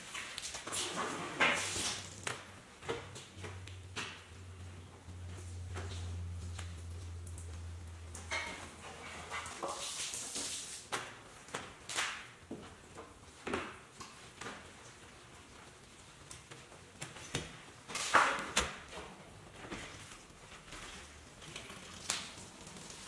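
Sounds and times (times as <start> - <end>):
wash pad scrubbing wet glass: 9.0 - 10.9.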